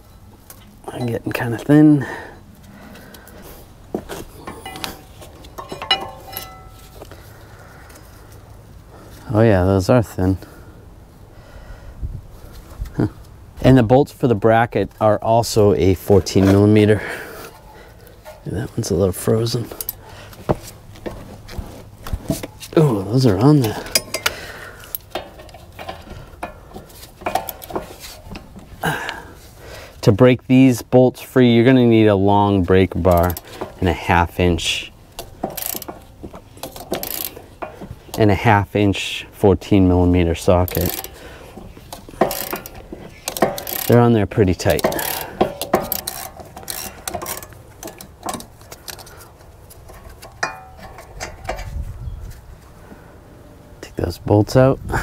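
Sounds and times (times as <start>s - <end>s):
metal clink: 4.4s - 7.1s, 23.6s - 26.6s, 49.9s - 51.7s
ratchet clicking: 27.2s - 28.4s, 33.1s - 33.8s, 35.1s - 37.9s, 40.7s - 41.2s, 41.8s - 51.6s.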